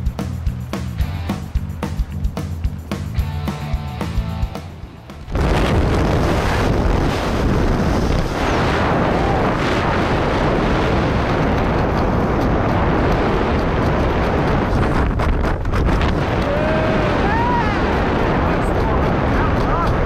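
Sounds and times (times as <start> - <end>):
wind buffeting microphone: 4.6 - 20.0.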